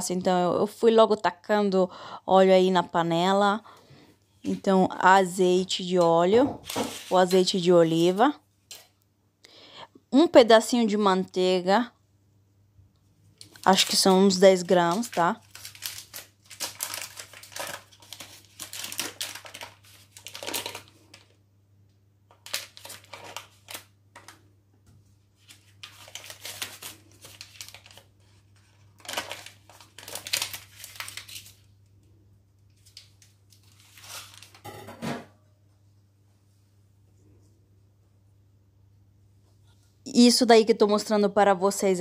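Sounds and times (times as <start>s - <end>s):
faint steady hum: 0.0s - 42.0s
paper wrapper crinkling and tearing: 6.6s - 8.1s, 13.4s - 21.4s, 22.3s - 24.4s, 25.4s - 31.8s, 32.7s - 34.6s.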